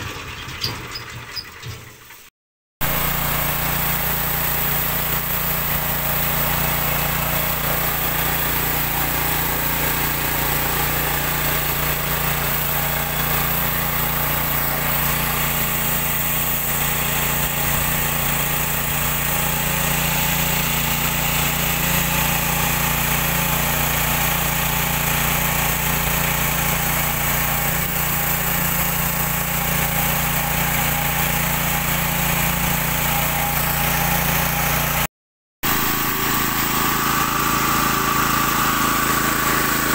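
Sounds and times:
small petrol engine running: 0:02.8 - 0:39.9.

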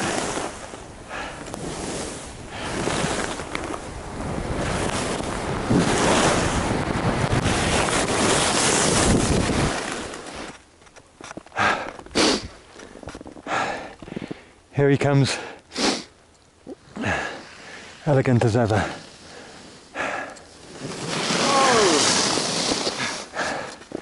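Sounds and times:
skis scraping on snow: 0:00.0 - 0:10.7, 0:17.1 - 0:24.0
wind on microphone: 0:01.5 - 0:10.2.

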